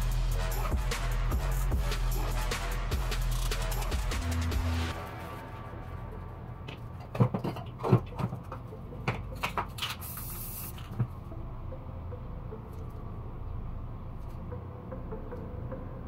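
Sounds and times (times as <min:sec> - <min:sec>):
spray can hissing: 0:09.8 - 0:10.9.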